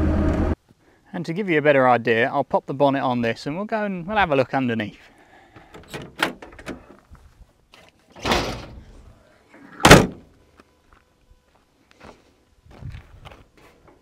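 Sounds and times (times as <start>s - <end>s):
car door slamming shut: 9.8s - 10.2s.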